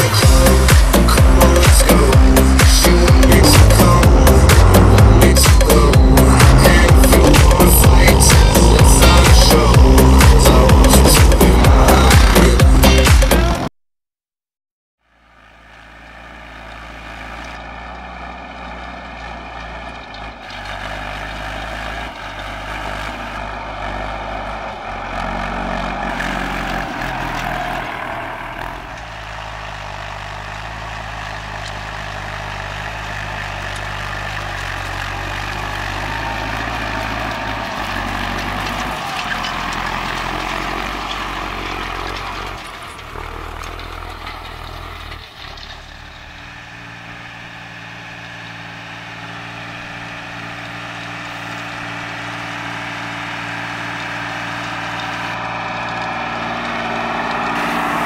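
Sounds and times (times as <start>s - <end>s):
tractor engines under load: 0.0s - 13.7s, 15.0s - 58.0s.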